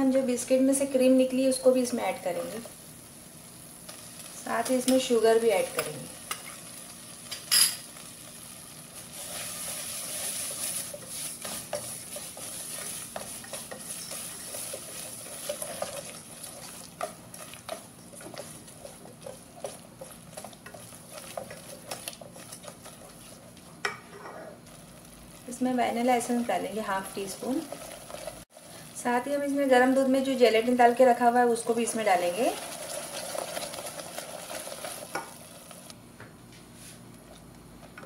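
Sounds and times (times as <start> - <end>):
whisk tapping a saucepan: 10.1 - 24.1.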